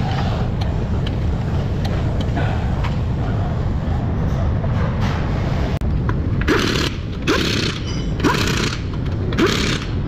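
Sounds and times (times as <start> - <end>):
impact wrench bursts: 6.5 - 10.0.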